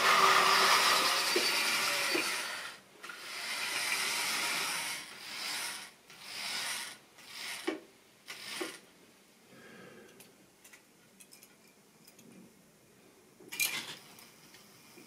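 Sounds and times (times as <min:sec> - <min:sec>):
model train whirring: 0:00.0 - 0:08.8.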